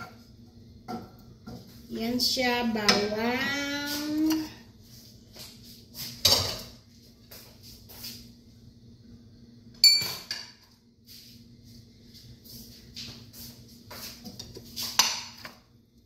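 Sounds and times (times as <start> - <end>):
steady low hum: 0.0 - 16.0
metallic clink with ring: 9.8 - 10.2.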